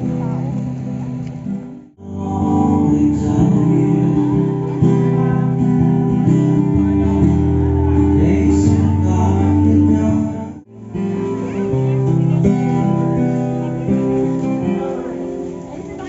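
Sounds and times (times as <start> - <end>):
background music with guitar: 0.0 - 16.0.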